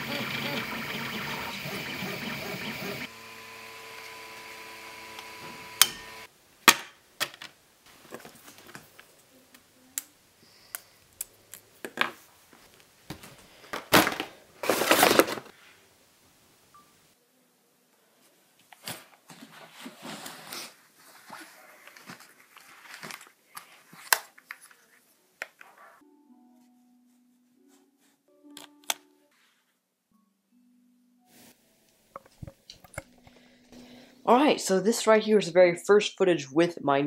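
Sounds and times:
electronic music: 0.0 - 3.1
stepper motors humming: 0.0 - 6.3
rustling scrape: 14.6 - 15.8, 18.8 - 24.0.

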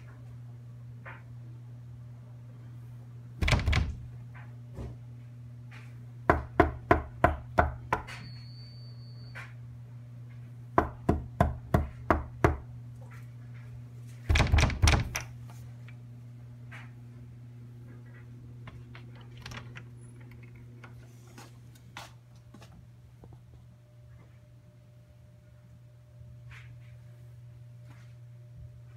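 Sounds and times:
steady low hum: 0.0 - 28.9
knuckles knocking on wooden door: 3.4 - 4.1, 14.3 - 15.2.

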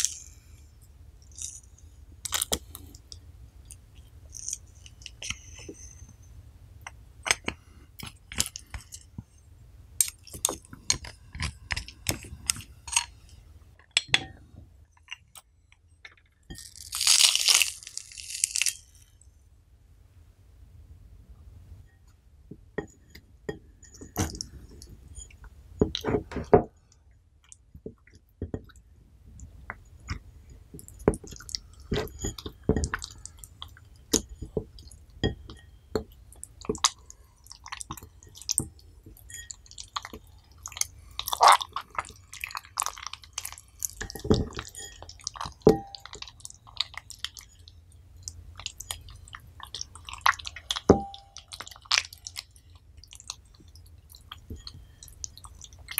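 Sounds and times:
slime squelching and popping: 16.6 - 19.0, 36.4 - 55.9.

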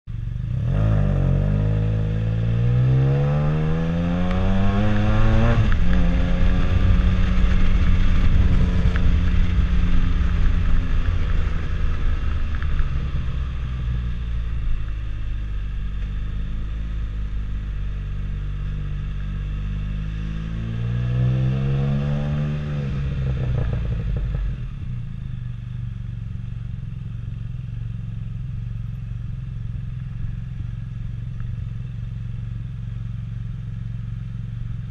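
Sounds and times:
motorcycle engine revving: 0.2 - 25.2.

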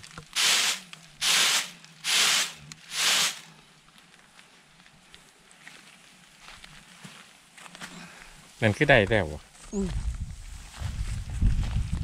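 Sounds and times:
grain swishing in woven tray: 0.3 - 3.5.

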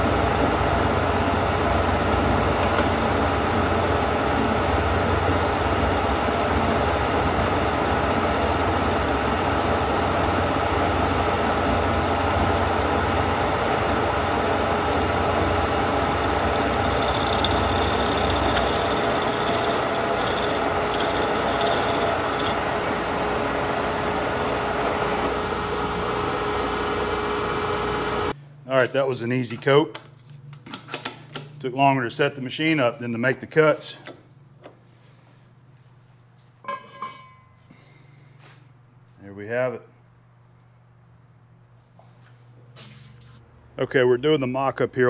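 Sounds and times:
milling machine hum: 0.0 - 28.4
scraping of metal cutting: 15.5 - 22.6.

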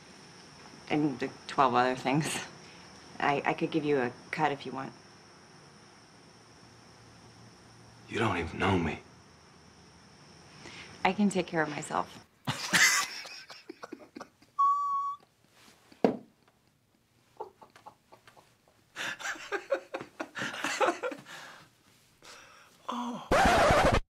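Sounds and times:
men laughing: 12.4 - 14.6, 17.3 - 21.5
high steady tone: 14.6 - 15.2.

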